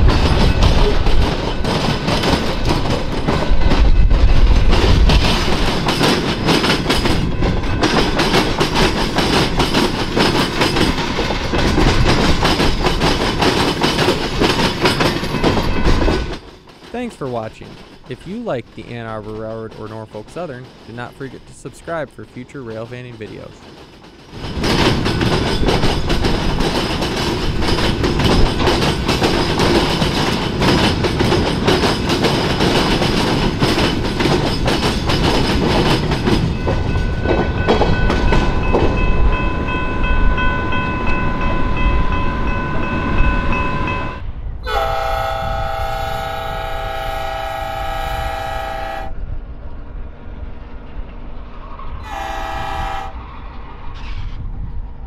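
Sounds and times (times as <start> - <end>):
train wheels clicking over rail joints: 0.0 - 54.6
locomotive horn blasts: 42.3 - 49.2, 52.0 - 53.2.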